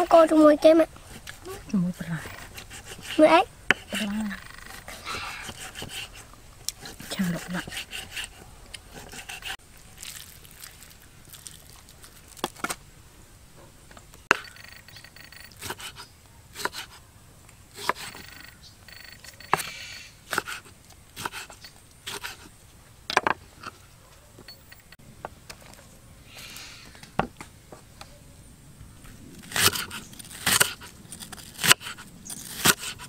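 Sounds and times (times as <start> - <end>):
sharp scrapes and clicks: 2.1 - 9.6, 29.4 - 33.0.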